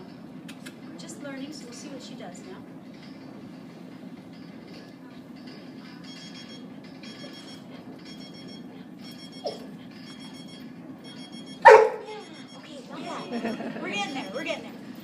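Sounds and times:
electronic timer beeping: 0:06.1 - 0:14.6.

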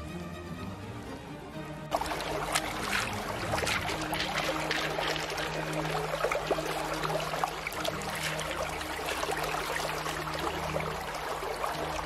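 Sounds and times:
river water flowing: 0:01.9 - 0:12.0.

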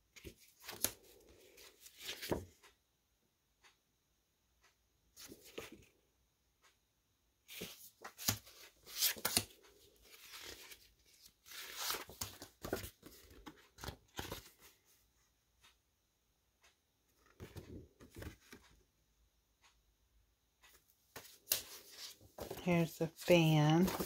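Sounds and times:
cards rustling: 0:07.5 - 0:14.8, 0:21.2 - 0:24.0.

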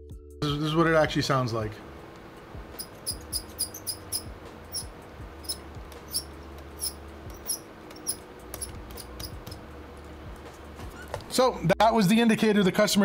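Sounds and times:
laptop fans humming: 0:01.8 - 0:11.3
high-pitched fan squeaks: 0:02.3 - 0:11.3.

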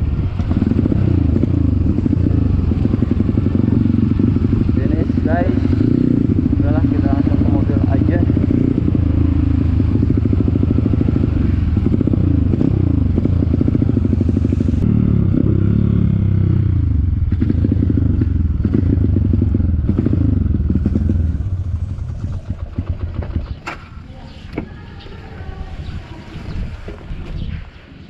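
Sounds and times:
motorcycle engine revving: 0:00.0 - 0:25.9.

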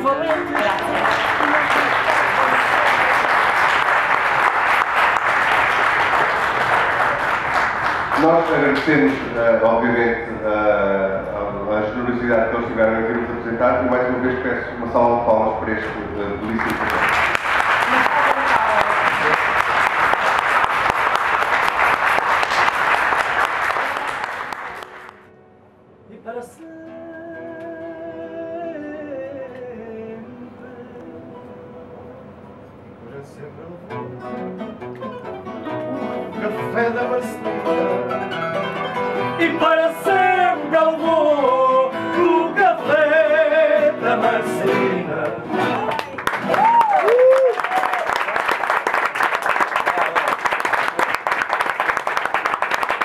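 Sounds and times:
audience applauding: 0:00.0 - 0:09.5, 0:16.4 - 0:25.3, 0:45.2 - 0:53.0
person singing: 0:26.1 - 0:31.6, 0:39.3 - 0:46.0
plucked guitar: 0:33.4 - 0:46.5.

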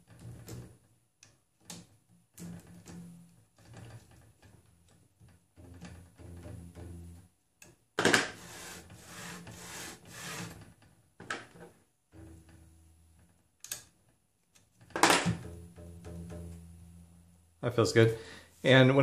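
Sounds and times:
quiet background music with bass: 0:05.6 - 0:07.3, 0:15.3 - 0:17.9
hands rubbing and sliding on machine: 0:08.2 - 0:10.6.

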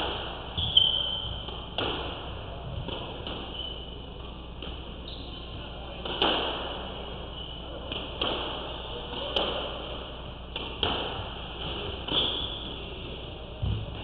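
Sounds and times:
squash ball hitting rackets and walls: 0:00.0 - 0:03.8, 0:05.6 - 0:14.0.

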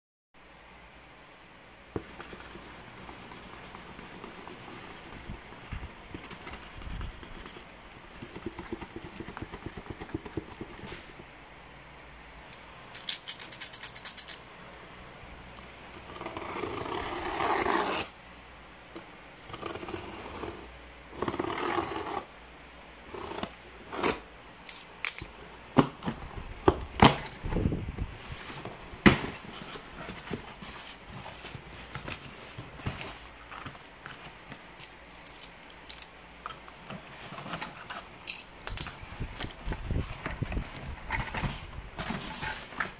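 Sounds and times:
marker scribbling on paper: 0:02.0 - 0:10.8.

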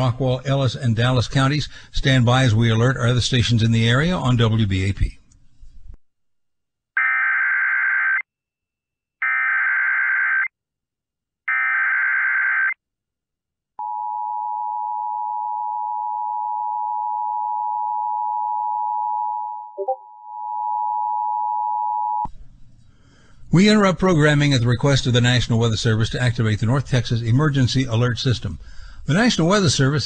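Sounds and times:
two-tone alert signal: 0:19.8 - 0:20.6.

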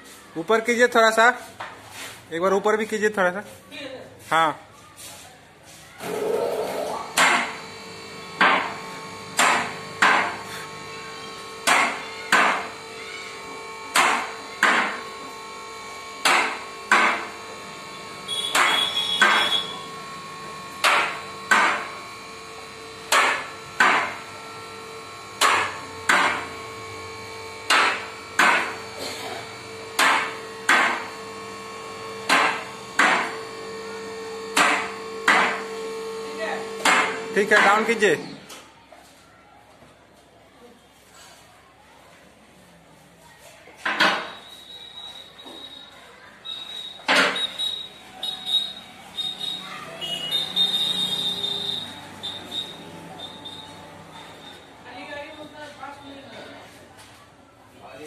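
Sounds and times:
hydraulic power unit hum: 0:05.9 - 0:38.5, 0:43.8 - 0:57.0
hiss with high squeak: 0:44.3 - 0:53.8.

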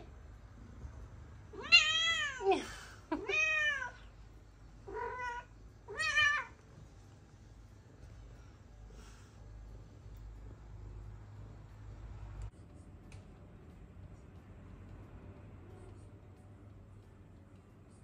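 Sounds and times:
cat meowing: 0:01.5 - 0:02.4, 0:03.2 - 0:04.1, 0:04.8 - 0:06.6.

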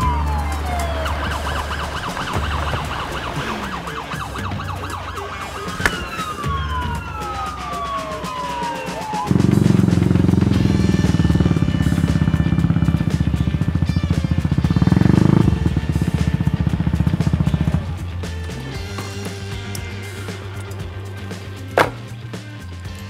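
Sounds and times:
comic whistle glides: 0:00.0 - 0:12.4
fast warbling whistle: 0:00.0 - 0:18.0
music track: 0:00.0 - 0:23.0
motorbike engine running: 0:09.3 - 0:23.0.

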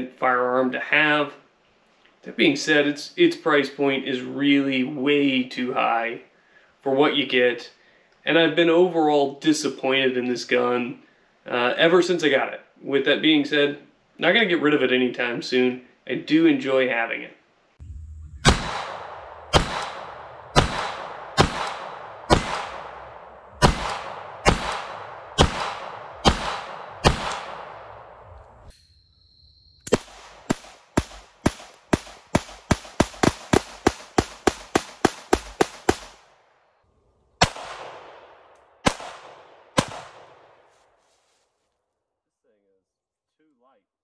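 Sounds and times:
pistol shots with echo: 0:18.4 - 0:28.3, 0:29.9 - 0:36.2, 0:37.4 - 0:40.6.

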